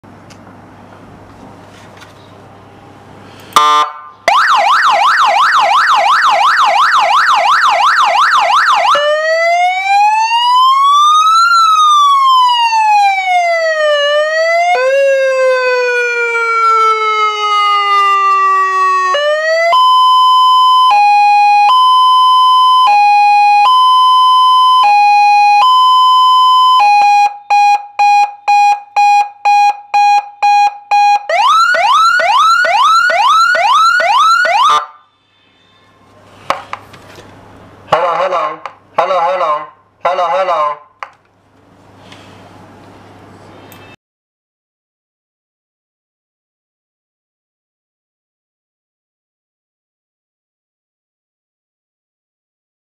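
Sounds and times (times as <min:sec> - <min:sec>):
electronic siren: 0:03.6 - 0:36.1.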